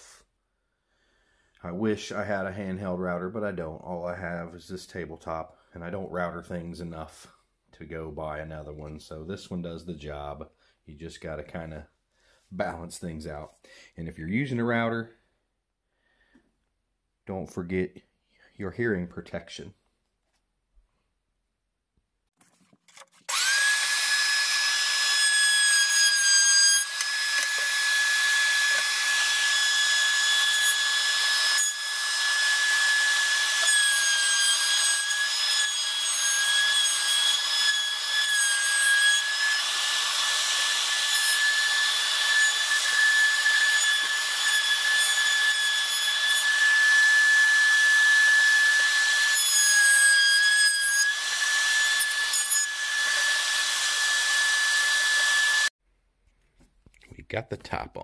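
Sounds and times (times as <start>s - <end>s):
wood router whining: 23.3s - 55.7s.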